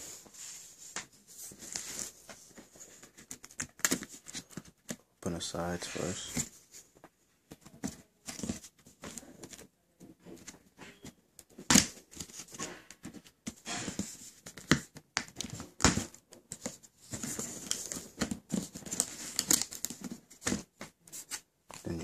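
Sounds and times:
cardboard tearing and crinkling: 0:17.1 - 0:20.7.

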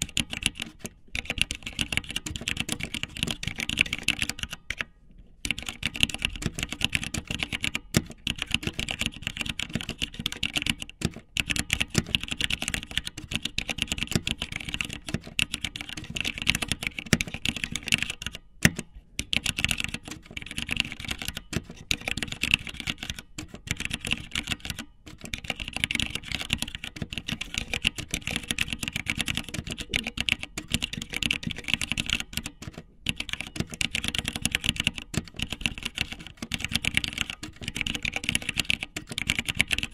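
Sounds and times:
rapid clicking: 0:19.3 - 0:39.9.

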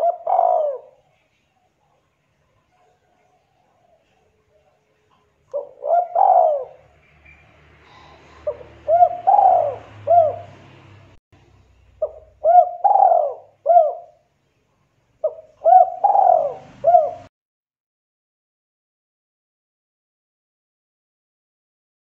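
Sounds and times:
dove cooing: 0:00.0 - 0:01.4, 0:05.5 - 0:10.8, 0:12.0 - 0:14.2, 0:15.2 - 0:17.3.

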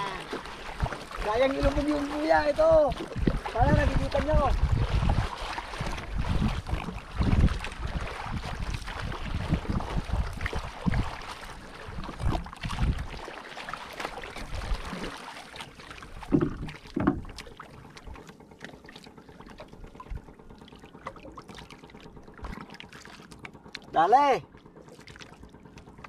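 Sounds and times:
wind on microphone: 0:00.0 - 0:13.2
paddle strokes splashing water: 0:00.0 - 0:26.0
water lapping: 0:00.0 - 0:26.0
dull knocks: 0:16.2 - 0:17.3.

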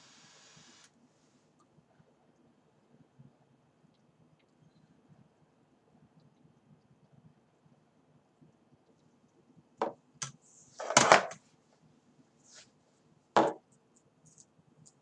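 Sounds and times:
wooden knocks on hard surface: 0:13.4 - 0:13.6.

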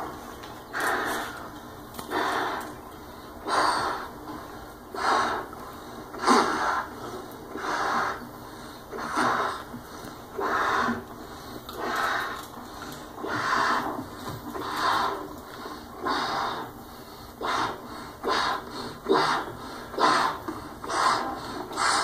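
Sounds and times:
man blowing up a balloon: 0:04.9 - 0:05.5, 0:06.1 - 0:08.3, 0:08.9 - 0:09.8, 0:13.2 - 0:15.3, 0:17.4 - 0:22.0.

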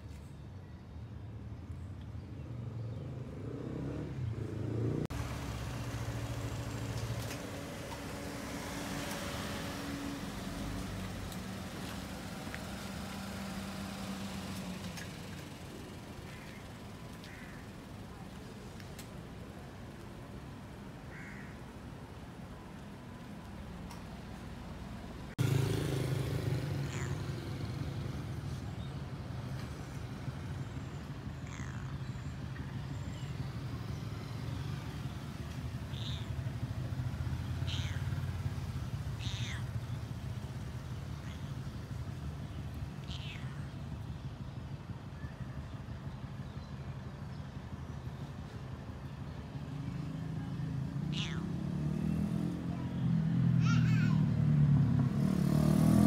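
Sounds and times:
low rumble of traffic: 0:00.0 - 0:56.0
cat meowing: 0:26.8 - 0:27.2, 0:37.6 - 0:38.2, 0:39.2 - 0:39.7, 0:43.0 - 0:43.6, 0:51.1 - 0:51.5.

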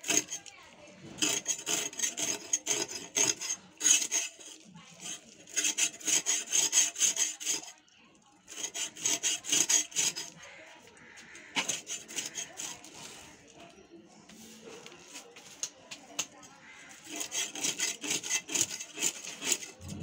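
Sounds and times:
fish scales scraped on blade: 0:00.0 - 0:07.8, 0:08.4 - 0:10.5, 0:11.3 - 0:13.4, 0:16.8 - 0:20.0.

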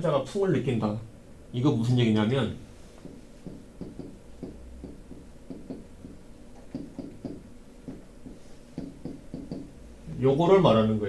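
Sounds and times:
marker writing on whiteboard: 0:02.8 - 0:09.7.

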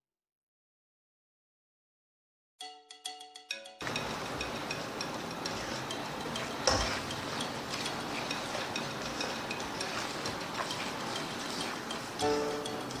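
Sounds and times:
spatula knocking on wok: 0:03.8 - 0:13.0
spatula scraping wok: 0:03.8 - 0:13.0
spice paste sizzling and popping: 0:03.9 - 0:13.0.

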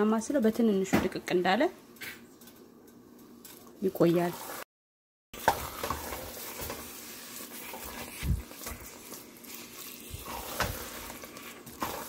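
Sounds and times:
soft sizzle: 0:01.5 - 0:04.7, 0:05.4 - 0:12.0
wooden spoon stirring stew in pot: 0:05.4 - 0:12.0.

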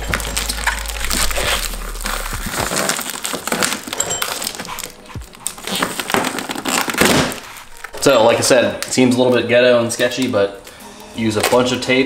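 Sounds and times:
packing tape crinkling: 0:00.0 - 0:09.5.

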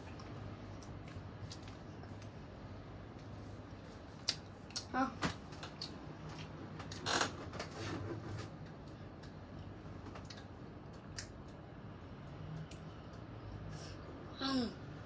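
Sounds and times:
rustling and clicks of food: 0:00.0 - 0:02.4, 0:03.1 - 0:11.6
faint low hum: 0:00.0 - 0:15.0
child vocal sound: 0:14.4 - 0:14.8.

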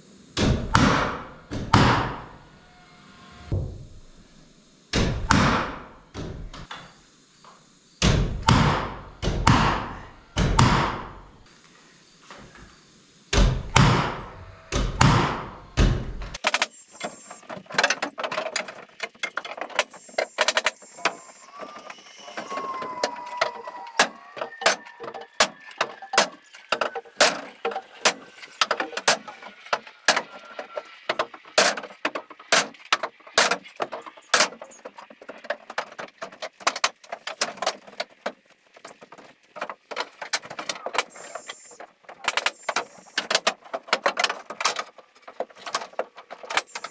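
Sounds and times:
sharp knocks and clicks on wood: 0:08.0 - 0:11.2, 0:13.4 - 0:21.2, 0:24.0 - 0:46.9.

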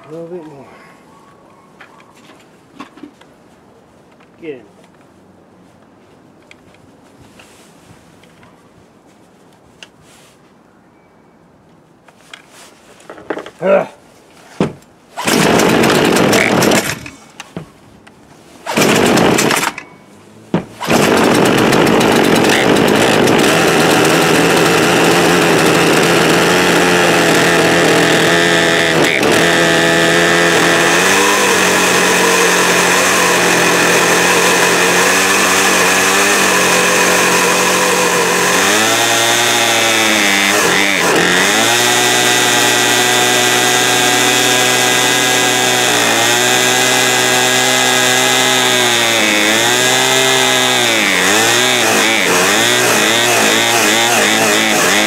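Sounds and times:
chainsaw engine starting and running: 0:15.2 - 0:17.2, 0:18.7 - 0:19.9, 0:20.7 - 0:55.0.

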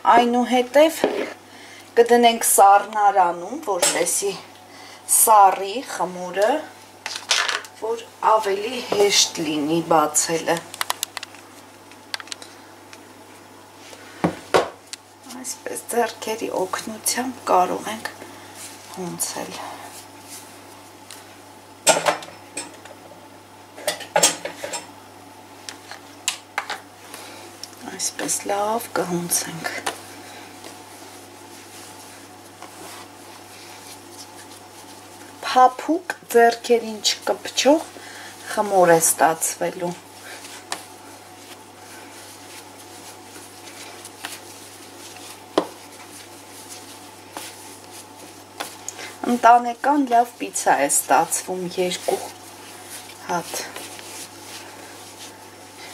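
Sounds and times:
hands kneading dough: 0:07.8 - 0:21.4, 0:26.9 - 0:55.9.

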